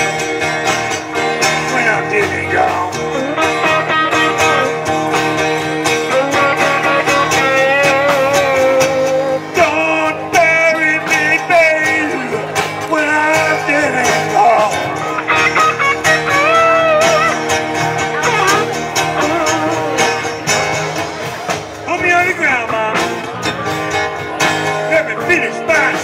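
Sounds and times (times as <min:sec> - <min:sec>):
bass and drums: 0:00.0 - 0:26.0
electric guitar: 0:00.0 - 0:26.0
strummed acoustic guitar: 0:00.0 - 0:26.0
wavering lead melody: 0:01.7 - 0:09.4, 0:14.4 - 0:21.4.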